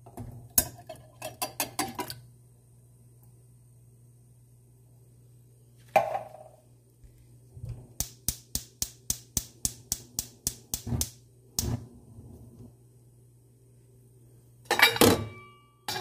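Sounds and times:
gas stove igniter clicking: 0:08.0 - 0:11.8.

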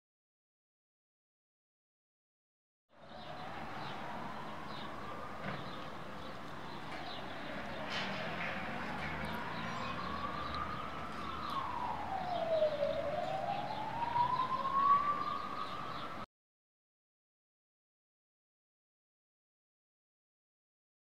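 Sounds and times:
siren wailing: 0:03.0 - 0:05.8, 0:08.6 - 0:16.2.

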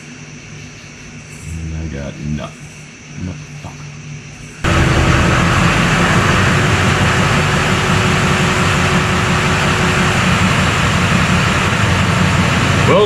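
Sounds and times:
faint steady whine: 0:00.0 - 0:13.0
diesel engine idling: 0:04.6 - 0:13.0.

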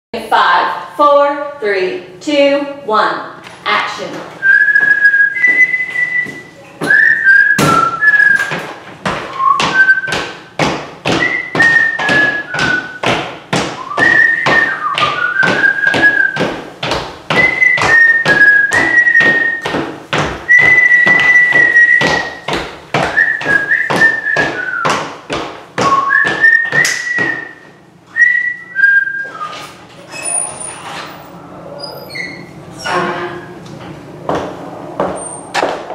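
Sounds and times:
person whistling a tune: 0:04.4 - 0:08.6, 0:09.4 - 0:10.3, 0:11.2 - 0:13.0, 0:13.8 - 0:16.4, 0:17.4 - 0:19.7, 0:20.5 - 0:22.5, 0:23.1 - 0:24.9, 0:25.8 - 0:29.6
steady beat of sharp taps: 0:07.6 - 0:27.5.

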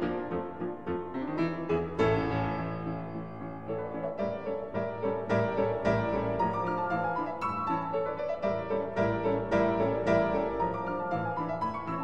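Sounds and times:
background piano music: 0:00.0 - 0:12.0.

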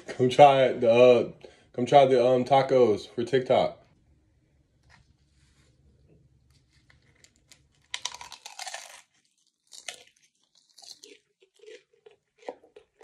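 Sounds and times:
taco shell crunching: 0:06.5 - 0:13.0.

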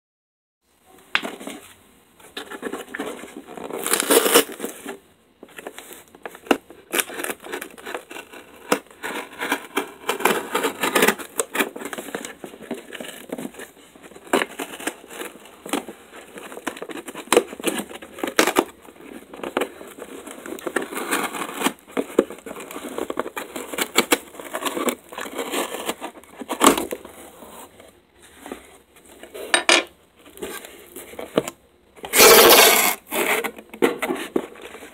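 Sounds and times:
tape tearing: 0:03.7 - 0:04.8, 0:32.0 - 0:34.2
pen scraping through tape: 0:32.1 - 0:33.4.

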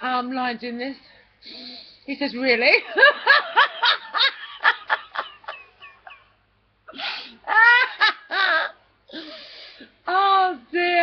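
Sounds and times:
woman laughing: 0:02.8 - 0:06.3, 0:07.4 - 0:08.8.

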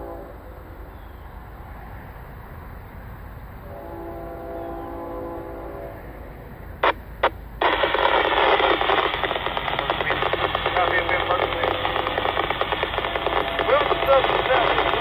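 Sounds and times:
crackling radio static hiss: 0:06.7 - 0:15.0
radio squelch bursts: 0:06.8 - 0:15.0
faint broken voice fragments: 0:08.3 - 0:15.0.

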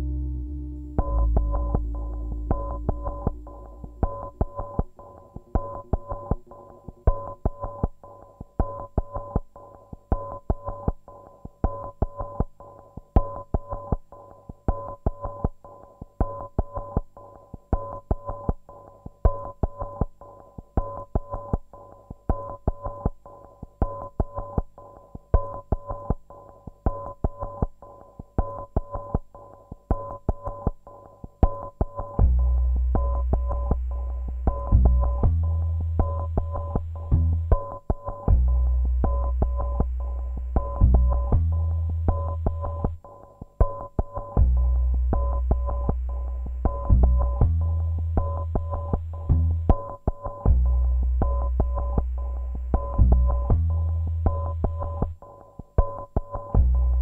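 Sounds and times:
deep low tone: 0:00.0 - 0:07.9
minimal electronic music: 0:00.0 - 0:57.0.

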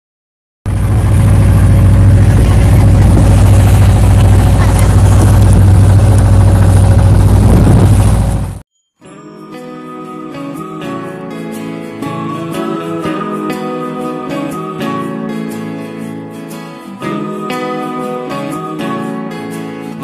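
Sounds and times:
boat engine running: 0:00.7 - 0:08.6
wind noise: 0:00.7 - 0:08.6
water rushing: 0:01.0 - 0:08.4.

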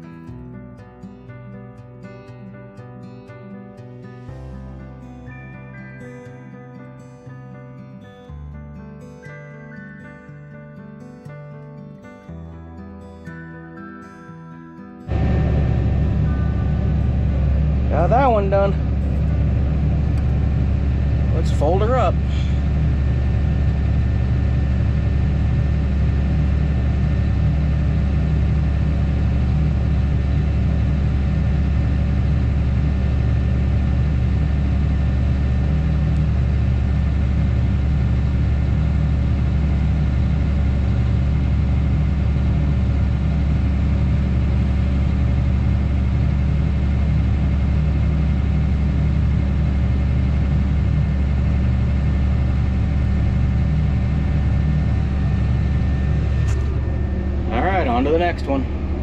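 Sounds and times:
tractor diesel engine running: 0:15.1 - 0:59.0.

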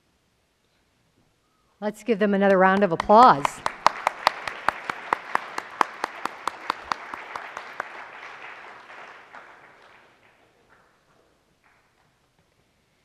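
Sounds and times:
sharp claps of one clapper: 0:02.4 - 0:12.2
audience applause: 0:02.5 - 0:12.1.

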